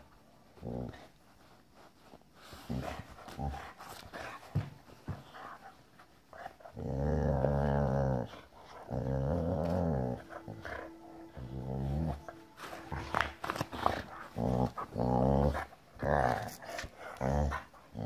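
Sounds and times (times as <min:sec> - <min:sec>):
dog growling low: 0:06.7 - 0:12.3, 0:12.9 - 0:18.0.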